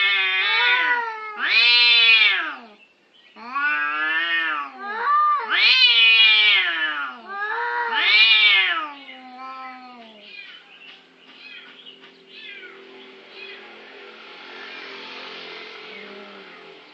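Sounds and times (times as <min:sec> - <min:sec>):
cats yowling: 0:00.0 - 0:02.8, 0:03.4 - 0:10.6.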